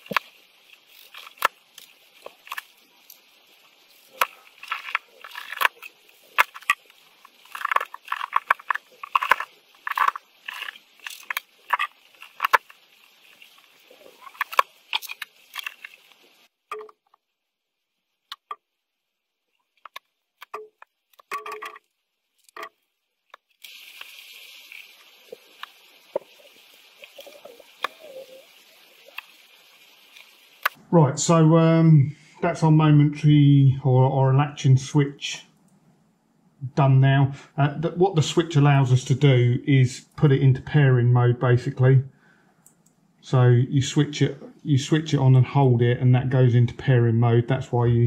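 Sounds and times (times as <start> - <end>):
small plastic and metal parts clicking: 4.2 - 17.2, 19.8 - 28.4.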